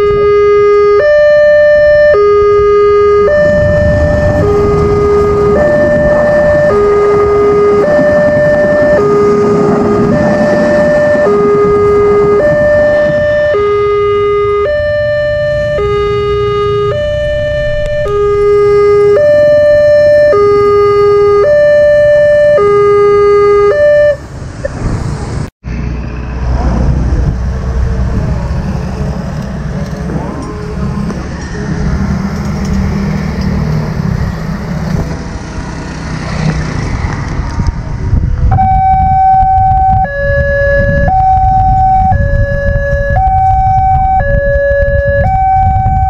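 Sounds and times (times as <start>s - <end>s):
two-tone electronic crossing alarm: 0.0s - 24.2s, 38.5s - 46.0s
road traffic: 0.0s - 46.0s
passing train rumble: 2.4s - 21.6s, 23.9s - 46.0s
motorcycles passing: 2.6s - 22.5s, 23.8s - 38.5s.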